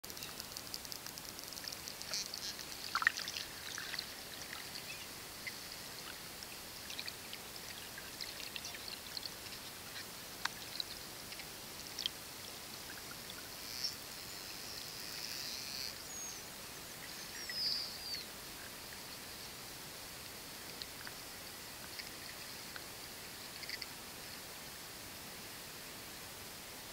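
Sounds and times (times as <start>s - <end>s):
whale clicks and crackles: 0.1s - 12.2s, 20.6s - 22.9s, 23.5s - 23.9s.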